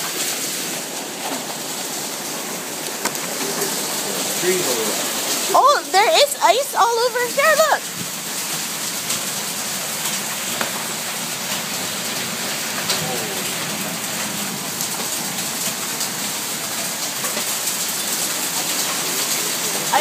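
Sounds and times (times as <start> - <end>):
hail and rain pelting: 0.0 - 20.0
hailstones clicking: 0.0 - 20.0.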